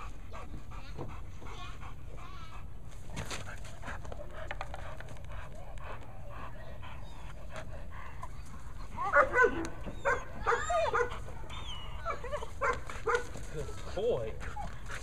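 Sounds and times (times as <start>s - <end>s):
dog whining and yelping: 6.8s - 15.0s.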